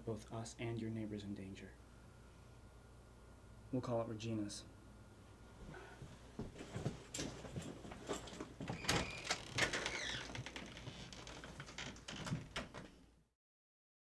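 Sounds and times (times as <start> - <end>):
door clicks and knocks: 8.5 - 13.0
door squeaking: 8.6 - 12.9.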